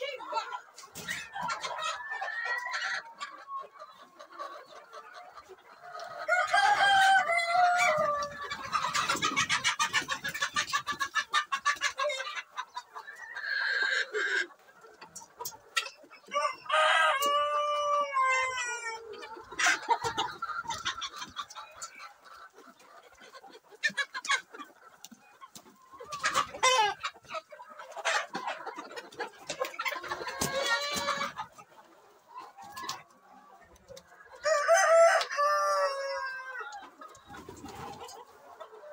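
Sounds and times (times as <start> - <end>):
chickens clucking and squawking: 0.0 - 38.9
rooster crowing: 34.4 - 36.6.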